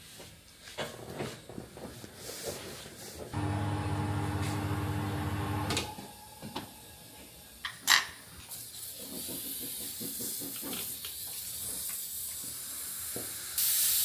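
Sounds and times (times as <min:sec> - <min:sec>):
turntable motor humming: 0:03.4 - 0:05.9.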